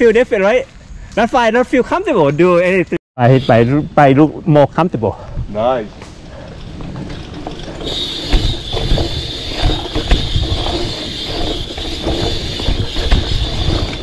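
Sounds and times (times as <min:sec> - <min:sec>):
bicycle freewheel ticking: 0:06.4 - 0:14.0
tyres thumping over bumps: 0:06.6 - 0:14.0.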